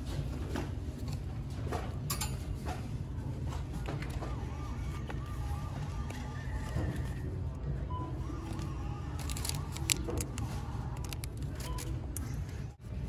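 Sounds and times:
low store hum: 0.0s - 13.0s
plastic packaging crinkling: 8.5s - 11.9s.

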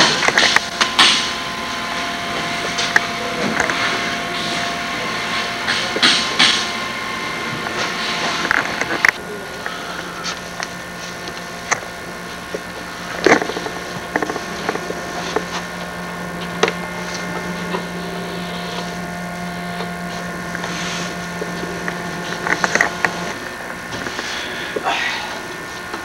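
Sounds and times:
machine motor humming: 0.0s - 26.0s.

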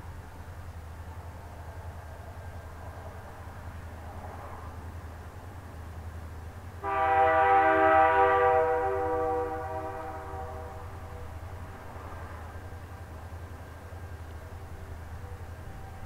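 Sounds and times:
locomotive air horn blast: 6.8s - 11.4s.

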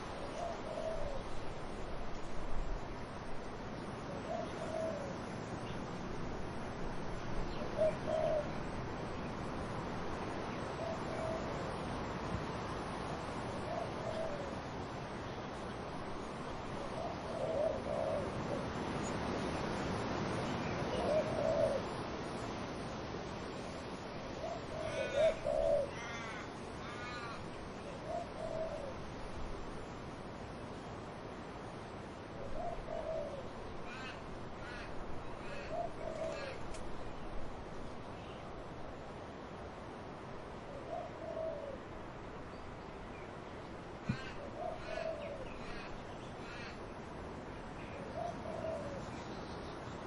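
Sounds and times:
dove cooing: 0.0s - 1.5s, 4.0s - 5.3s, 7.5s - 8.8s, 10.6s - 11.7s, 13.6s - 14.7s, 16.6s - 18.8s, 20.9s - 22.0s, 24.2s - 29.1s, 32.4s - 36.7s, 40.7s - 41.9s, 44.0s - 46.8s, 47.8s - 49.4s
wind in trees: 0.0s - 50.0s.

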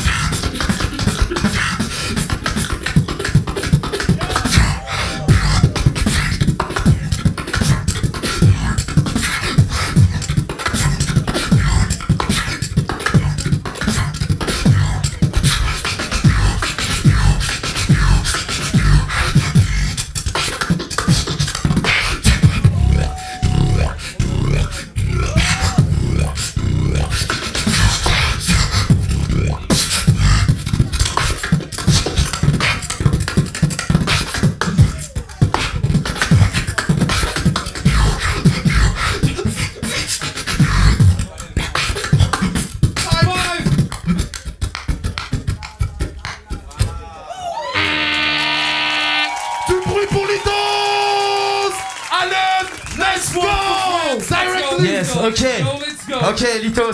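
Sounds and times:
beatboxing into a microphone: 0.0s - 47.2s, 52.6s - 56.9s
pitched vocal swoops: 3.5s - 9.4s, 13.8s - 30.3s
deep bass hum: 4.1s - 7.8s, 16.2s - 20.0s, 22.3s - 27.1s, 27.7s - 30.7s.

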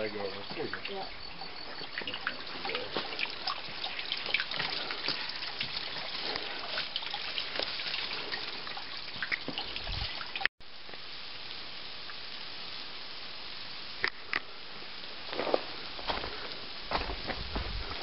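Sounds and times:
creek water trickling over rocks: 0.0s - 12.3s
small water splashes: 1.8s - 10.5s.

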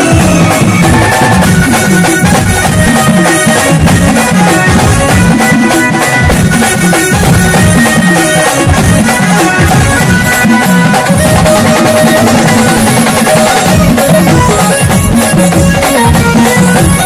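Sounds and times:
festival music with drums: 0.0s - 17.0s.

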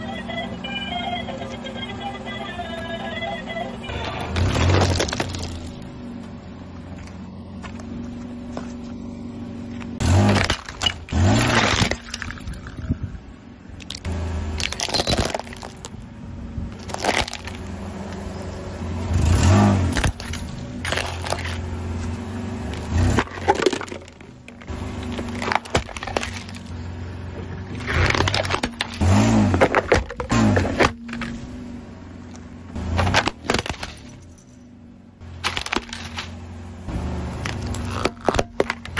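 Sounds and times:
plastic toys cracking under tyre: 4.2s - 5.8s, 10.2s - 12.6s, 13.8s - 16.0s, 16.8s - 17.6s, 19.9s - 21.6s, 22.7s - 26.7s, 27.7s - 31.3s, 33.0s - 34.1s, 35.4s - 36.4s, 37.4s - 38.9s.

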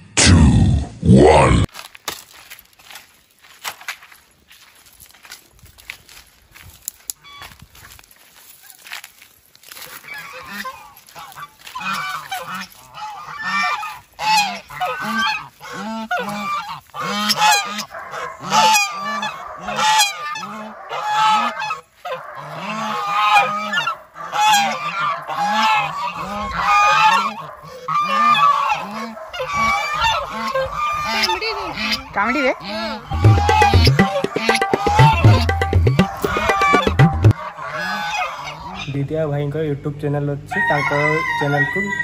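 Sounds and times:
geese honking: 10.0s - 39.0s.

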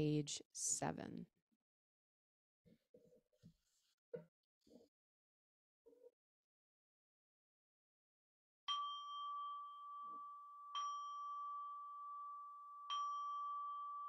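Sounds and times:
singing bowl ringing: 8.7s - 14.0s.

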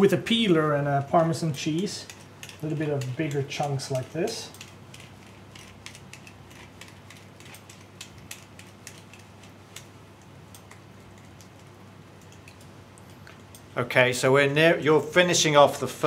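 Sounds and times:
low steady hum: 0.0s - 16.0s
peeler scraping cheese: 1.6s - 9.6s.

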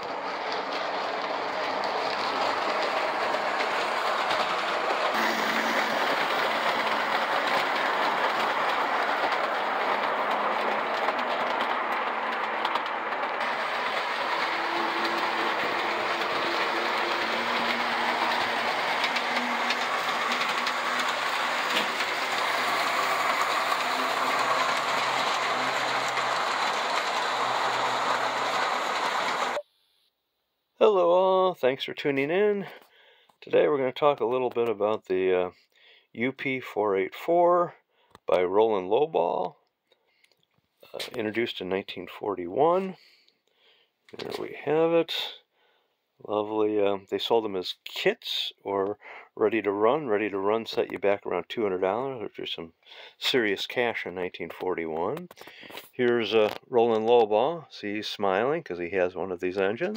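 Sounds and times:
model train wheels rumbling: 0.0s - 29.6s
wheels clicking over rail joints: 0.0s - 29.6s.

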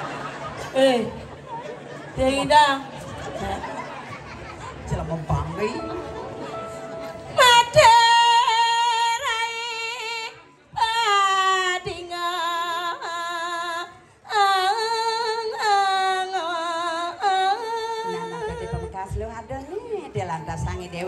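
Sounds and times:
woman singing unaccompanied: 7.3s - 21.0s.

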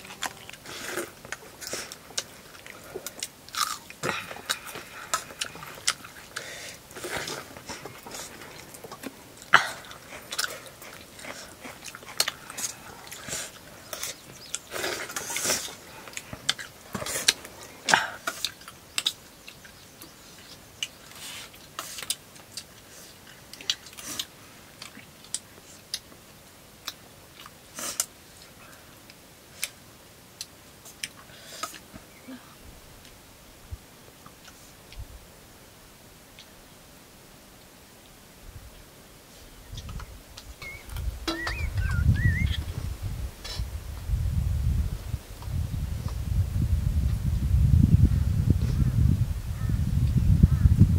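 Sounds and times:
wet chewing and smacking: 0.0s - 26.2s, 39.7s - 42.6s.

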